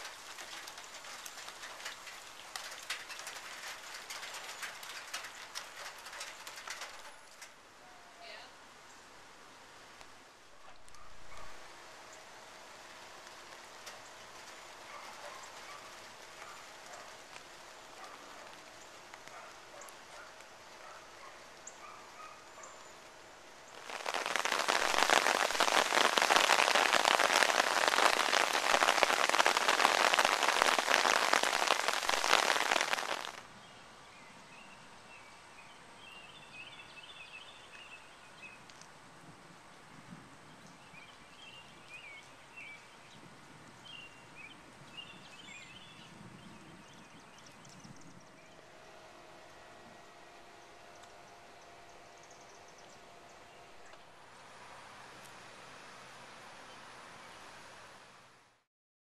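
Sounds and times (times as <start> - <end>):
heavy rain hissing: 0.0 - 7.4, 23.5 - 33.4
faint outdoor hush: 0.0 - 38.4.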